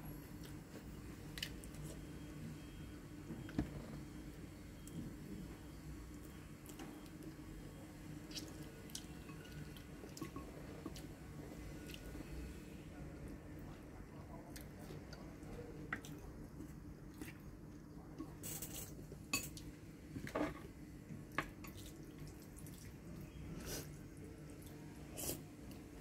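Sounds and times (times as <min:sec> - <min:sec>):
faint low hum: 0:00.0 - 0:26.0
mouth noises while eating: 0:14.4 - 0:19.0, 0:21.8 - 0:25.9.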